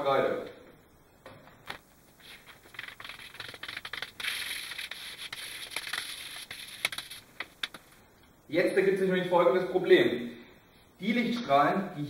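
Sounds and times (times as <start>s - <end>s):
chalk scraping on blackboard: 2.2s - 7.2s.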